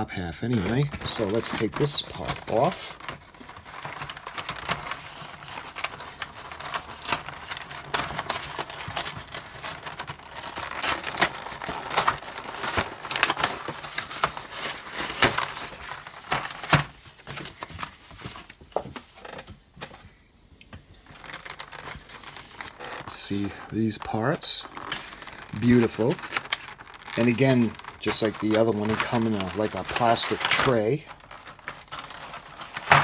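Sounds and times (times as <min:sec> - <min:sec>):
packaging crinkling: 0:00.3 - 0:19.4, 0:20.9 - 0:33.0.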